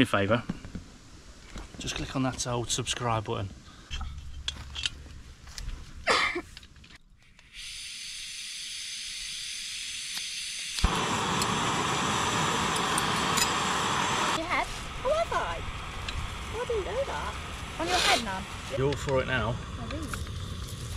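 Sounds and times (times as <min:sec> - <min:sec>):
gas hissing from valve: 0:07.3 - 0:20.9
gas burner rushing: 0:07.4 - 0:20.9.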